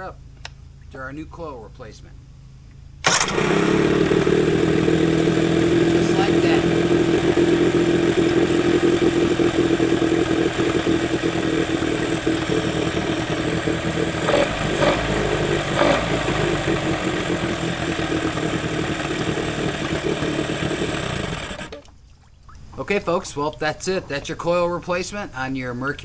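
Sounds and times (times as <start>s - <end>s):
outboard motor running: 3.0s - 22.8s.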